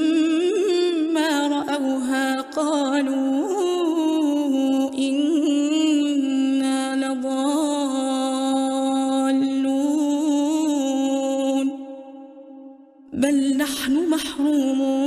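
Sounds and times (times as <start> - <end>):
woman chanting melodically: 0.0 - 15.0.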